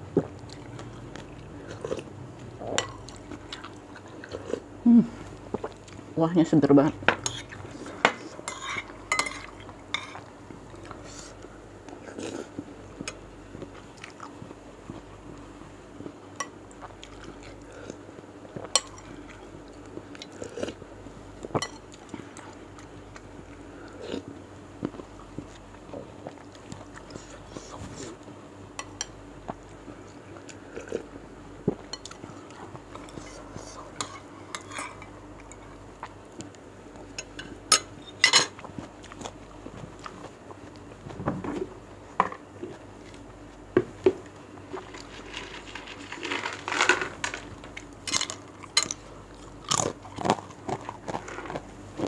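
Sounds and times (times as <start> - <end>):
chewing: 0.2 - 4.7, 21.4 - 28.2, 47.8 - 51.7.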